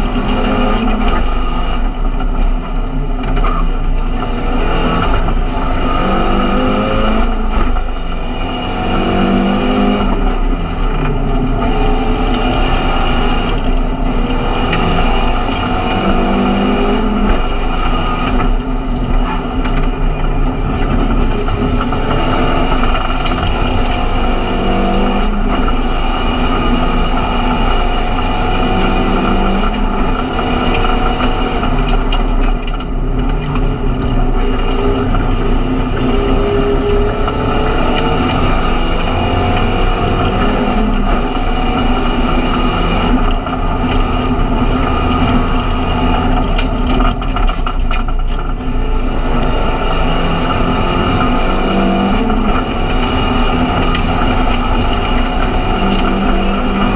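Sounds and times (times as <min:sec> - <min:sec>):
race car engine at full throttle: 0:00.0 - 0:56.9
road and tyre noise: 0:00.0 - 0:56.9.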